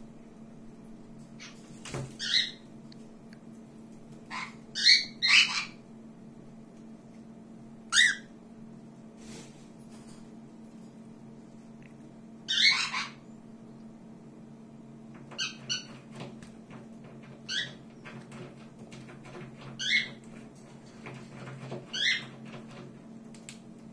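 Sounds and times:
birds high-pitched calls: 2.2 - 2.6, 4.3 - 5.8, 7.9 - 8.3, 12.4 - 13.4.

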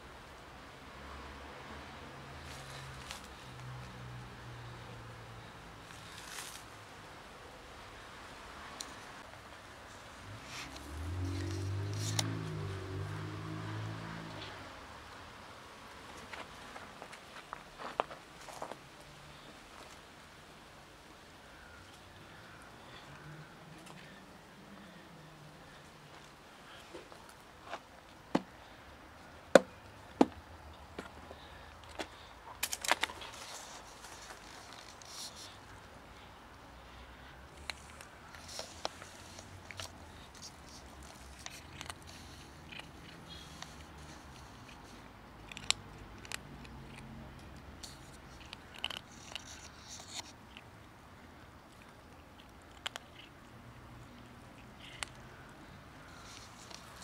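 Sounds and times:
quiet chewing: 9.9 - 13.2, 21.4 - 28.8, 30.7 - 57.0
cat crunching kibble: 10.4 - 14.4, 37.5 - 57.0.

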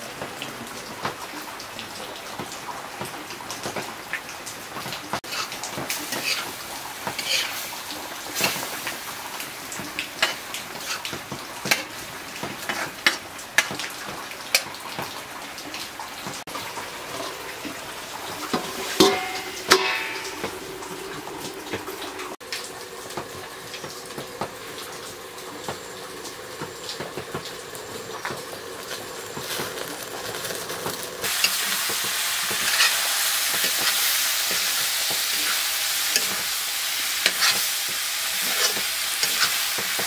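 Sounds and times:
pork sizzling: 1.0 - 40.0
metal ladle scraping a wok: 6.1 - 6.6, 7.2 - 7.6, 18.6 - 20.5, 32.5 - 34.8, 37.2 - 37.7, 38.3 - 39.7
metal clanks with a ring: 19.0 - 20.5.

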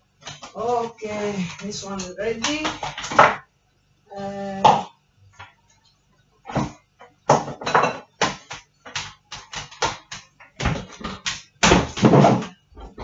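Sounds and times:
knocks and clanks of kitchenware: 2.4 - 3.4, 6.5 - 13.0
rattle of items in cupboard: 10.4 - 13.0.

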